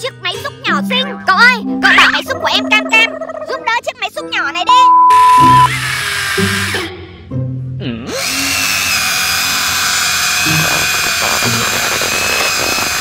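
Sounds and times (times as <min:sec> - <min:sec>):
children's background music: 0:00.0 - 0:05.7
toy excavator electric motors whining: 0:05.6 - 0:06.9, 0:08.1 - 0:13.0.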